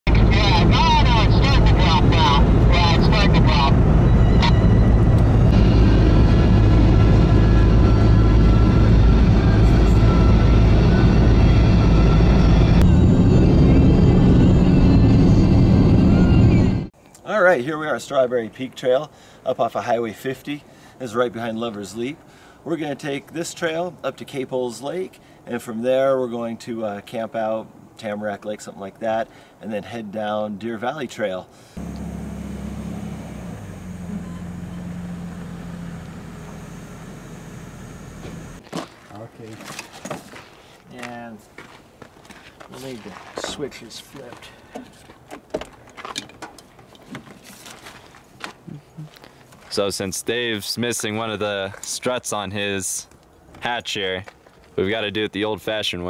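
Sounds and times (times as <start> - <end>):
vehicle road and engine noise: 0.1 - 17.0, 31.5 - 39.0
vehicle engine idling: 31.8 - 38.6.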